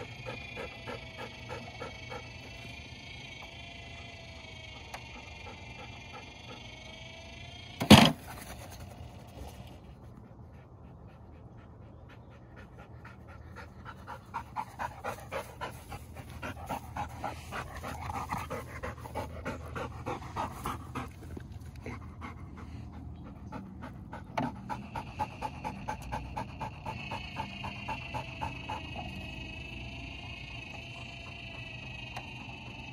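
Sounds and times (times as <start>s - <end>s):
dog panting hard: 0.0s - 3.0s, 8.1s - 29.4s.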